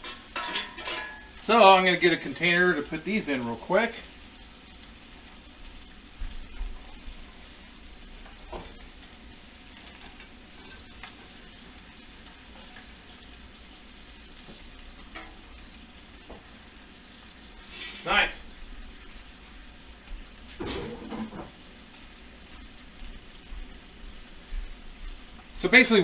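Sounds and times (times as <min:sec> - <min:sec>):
bacon sizzling in a frying pan: 0:00.0 - 0:26.0.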